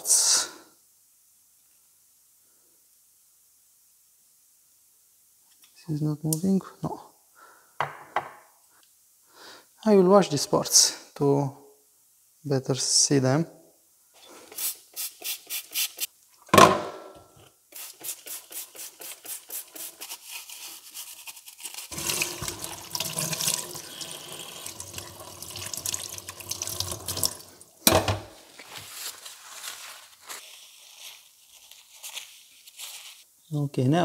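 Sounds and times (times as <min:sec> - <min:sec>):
tap running water: 0:21.9 - 0:28.3.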